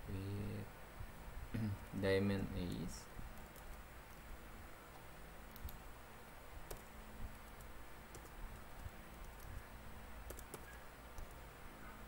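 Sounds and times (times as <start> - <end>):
low steady hum: 0.0 - 12.0
computer keys typing: 3.3 - 4.2, 4.9 - 5.9, 6.6 - 11.4.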